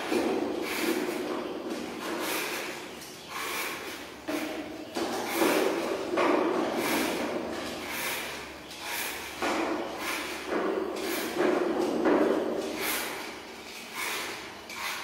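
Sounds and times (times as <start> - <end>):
peeler scraping gourd skin: 12.6 - 15.0.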